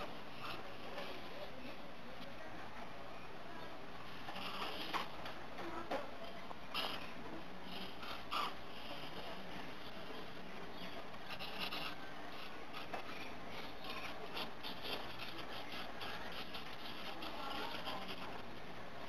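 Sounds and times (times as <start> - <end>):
marker squeaking on paper: 4.1 - 5.4, 6.7 - 18.4.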